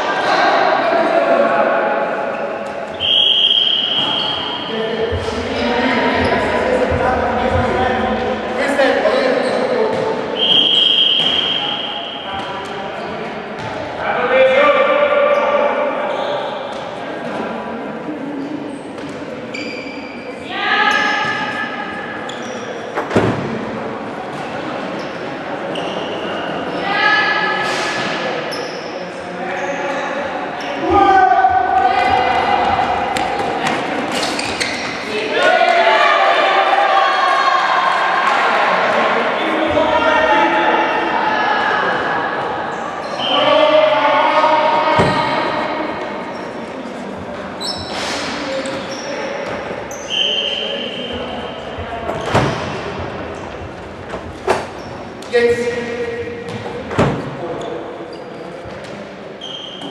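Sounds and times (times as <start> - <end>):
sneakers squeaking on court: 9.4 - 14.0, 18.5 - 20.3, 22.2 - 23.0, 34.1 - 35.1, 47.2 - 55.2
shoe squeak and scuffing: 18.7 - 20.2, 34.1 - 35.0, 47.6 - 51.2.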